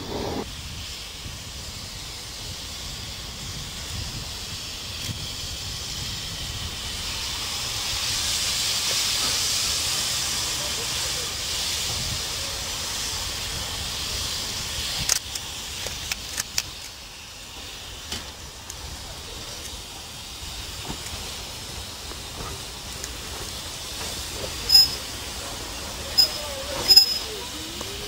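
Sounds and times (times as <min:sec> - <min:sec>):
steam locomotive hissing steam: 0:00.0 - 0:28.0
metallic clanks: 0:24.7 - 0:25.0
ringing metallic squeal: 0:24.7 - 0:25.1, 0:26.1 - 0:27.5.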